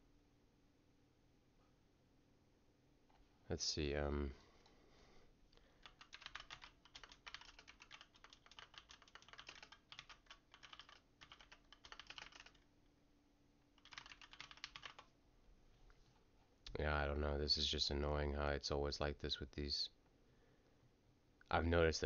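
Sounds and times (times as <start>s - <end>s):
faint keyboard typing: 5.6s - 12.7s, 13.8s - 15.2s.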